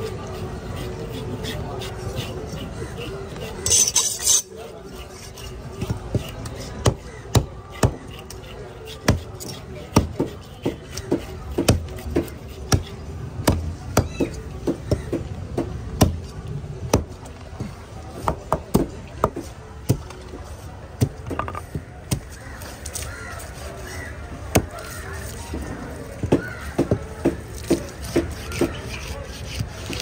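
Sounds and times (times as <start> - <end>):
cleaver chopping on wooden board: 5.8 - 8.3, 8.9 - 16.2, 24.5 - 24.9, 26.2 - 30.0.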